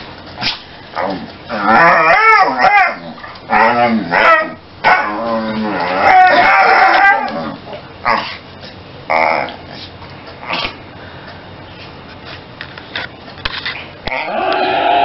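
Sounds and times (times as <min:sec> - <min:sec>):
dog howling: 0:01.0 - 0:07.6, 0:14.1 - 0:15.0.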